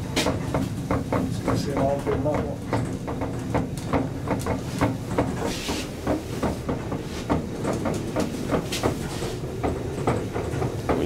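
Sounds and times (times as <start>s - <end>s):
elevator car rumbling: 0.0s - 11.0s
rattling knocks: 0.1s - 11.0s.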